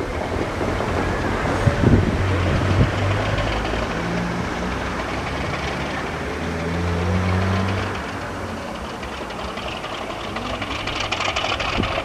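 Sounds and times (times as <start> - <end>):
wind buffeting microphone: 0.0 - 5.5, 10.9 - 12.0
diesel locomotive engine drone: 0.0 - 12.0.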